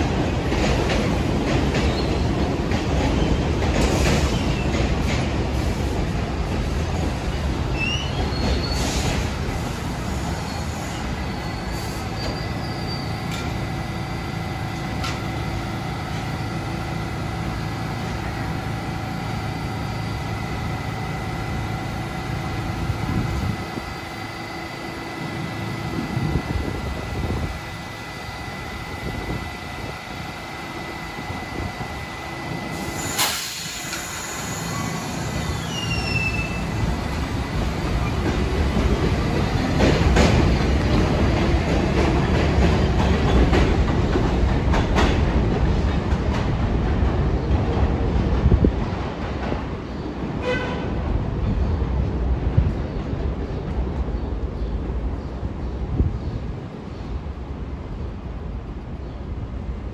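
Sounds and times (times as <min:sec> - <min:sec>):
subway train rumbling: 0:00.0 - 0:59.9
high steady whine: 0:13.1 - 0:37.7.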